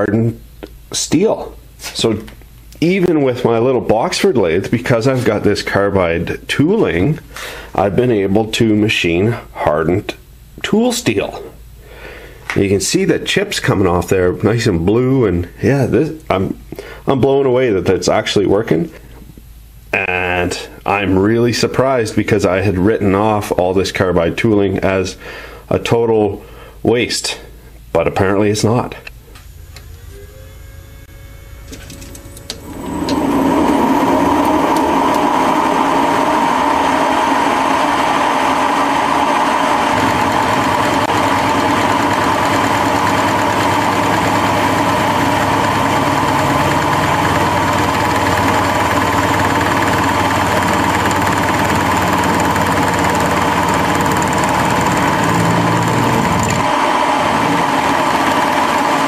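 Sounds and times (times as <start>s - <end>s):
lathe running with hum: 29.4s - 59.0s.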